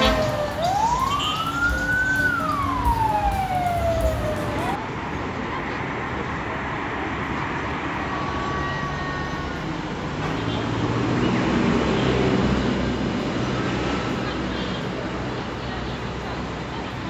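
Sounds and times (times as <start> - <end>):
siren wailing: 0.0 - 4.8
road traffic noise: 0.0 - 17.0.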